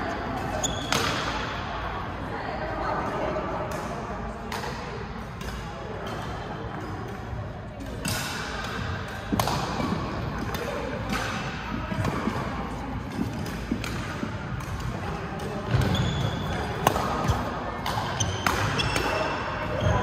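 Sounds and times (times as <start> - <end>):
racket striking shuttlecock: 7.8 - 12.4, 13.1 - 19.1.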